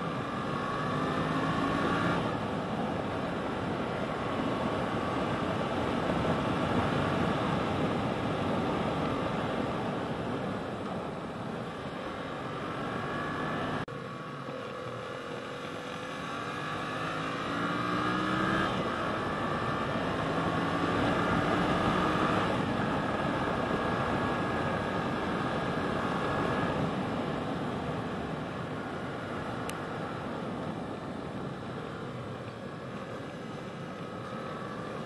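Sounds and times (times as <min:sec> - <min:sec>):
motorcycle engine revving: 0:00.0 - 0:02.5, 0:12.4 - 0:26.8.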